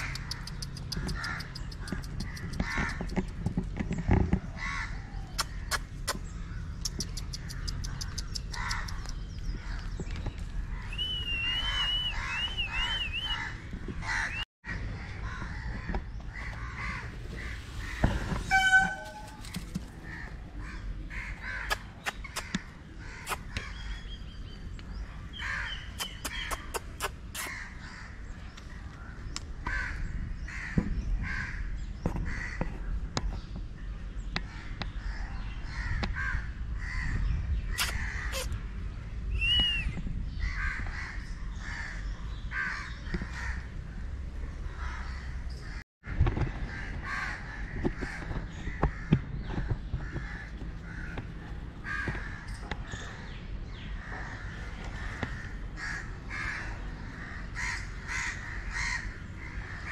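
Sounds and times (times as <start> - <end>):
birds calling and whistling: 0.0 - 59.9
crows cawing: 1.0 - 3.1, 4.5 - 5.7, 11.7 - 19.4, 20.0 - 21.8, 29.6 - 32.6, 40.4 - 43.7, 46.6 - 49.2, 50.0 - 52.6, 54.0 - 59.9
loud short bird call: 16.8 - 19.5, 37.7 - 38.6.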